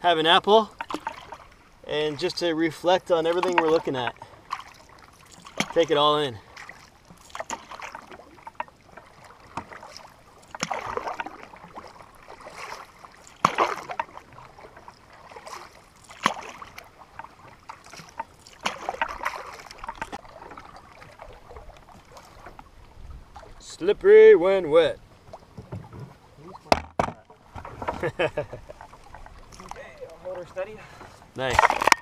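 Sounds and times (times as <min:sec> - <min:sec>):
paddle splashing in water: 0:00.2 - 0:23.8, 0:24.4 - 0:32.0.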